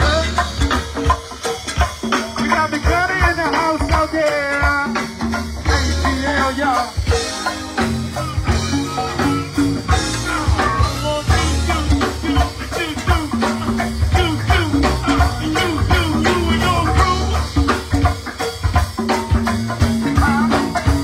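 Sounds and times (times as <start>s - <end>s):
person singing: 0.0s - 0.8s, 5.7s - 7.5s, 8.2s - 17.8s, 20.0s - 21.0s
live band playing: 0.0s - 21.0s.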